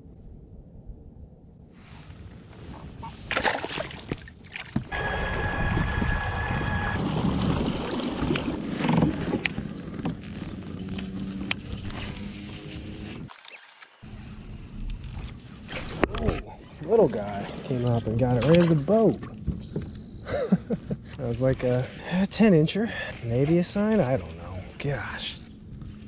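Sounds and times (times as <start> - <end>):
water splashing around a kayak: 3.0 - 11.9, 16.8 - 19.6.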